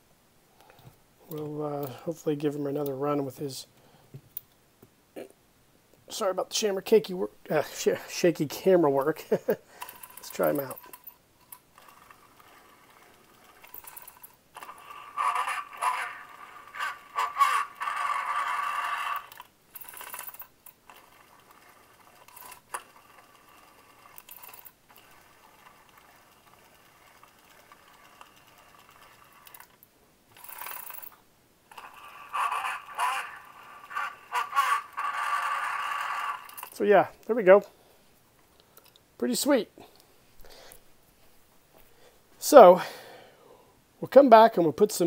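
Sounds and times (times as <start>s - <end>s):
toy voice box recorded phrase: 15.2s - 19.2s, 31.9s - 36.5s.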